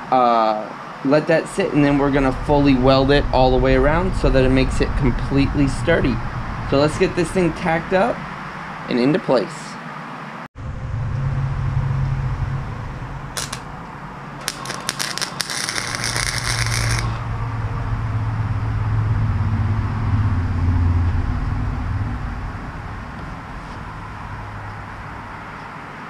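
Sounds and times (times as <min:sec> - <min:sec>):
low steady hum: 0:01.6 - 0:08.9, 0:10.6 - 0:25.4
arc welding crackle: 0:13.4 - 0:13.7, 0:14.4 - 0:17.2.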